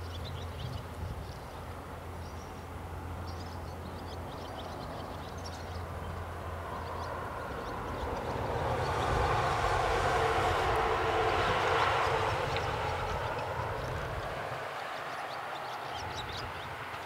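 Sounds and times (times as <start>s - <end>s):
birds chirping faintly: 10.8s - 17.0s.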